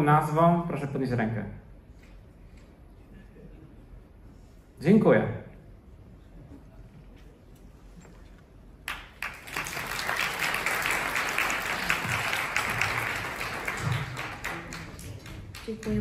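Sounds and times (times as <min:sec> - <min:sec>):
audience applauding: 0:08.9 - 0:16.0.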